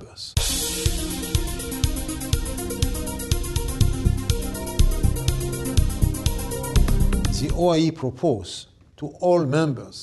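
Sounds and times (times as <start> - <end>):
background music with steady beat: 0.4 - 8.0.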